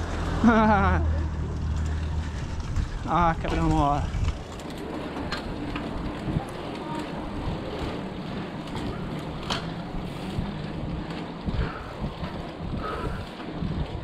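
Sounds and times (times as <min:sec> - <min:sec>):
bicycle tyres rolling on asphalt: 0:00.0 - 0:14.0
bike clicks and knocks: 0:00.0 - 0:14.0
wind on microphone: 0:01.7 - 0:04.6, 0:05.4 - 0:08.0, 0:08.7 - 0:14.0.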